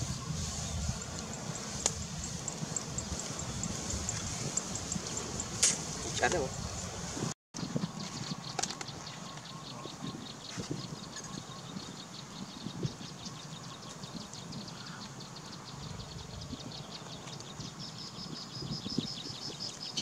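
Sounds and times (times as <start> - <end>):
rapid high-pitched chirping: 0.0 - 6.9
low rumbling background: 0.0 - 7.3.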